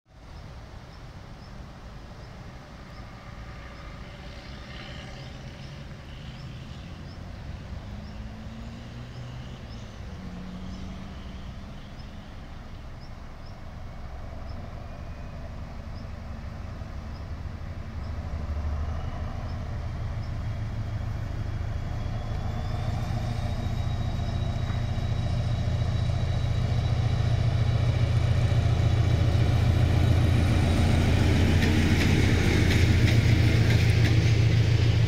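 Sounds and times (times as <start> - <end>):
diesel locomotive engine rumble: 0.2 - 35.0
faint high chirp: 14.4 - 16.2.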